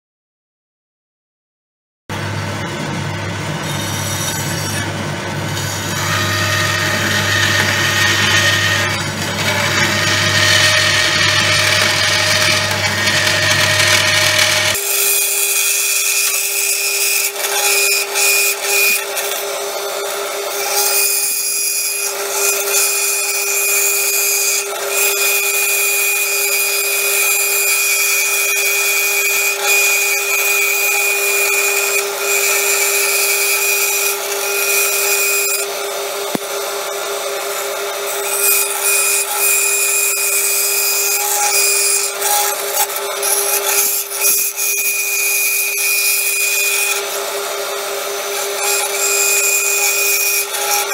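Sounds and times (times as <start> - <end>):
bandsaw whine: 2.1 - 50.9.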